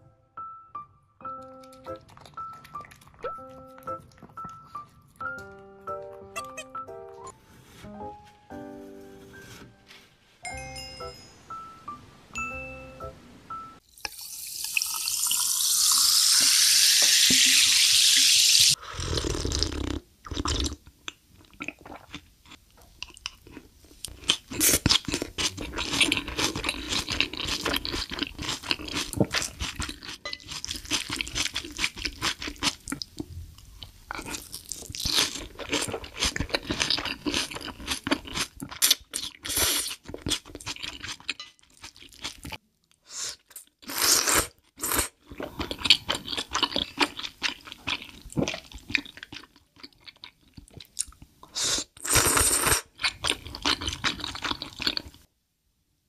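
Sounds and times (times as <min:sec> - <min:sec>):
wet chewing: 0:01.4 - 0:05.5, 0:19.3 - 0:42.6, 0:43.3 - 0:51.3, 0:52.1 - 0:55.3.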